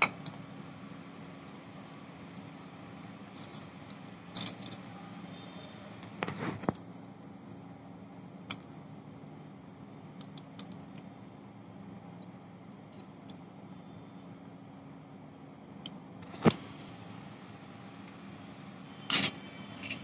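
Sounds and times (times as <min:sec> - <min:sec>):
metal tool clicks and clinks: 0:04.3 - 0:04.9.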